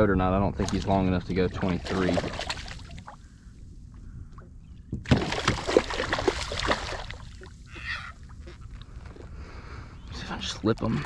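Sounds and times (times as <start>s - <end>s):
fish splashing in water: 1.6s - 3.2s, 5.1s - 7.9s.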